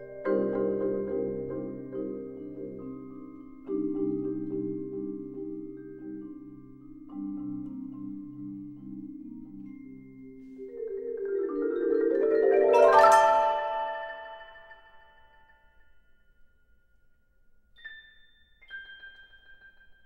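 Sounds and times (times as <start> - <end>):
marimbas playing chords: 0.0 - 16.0.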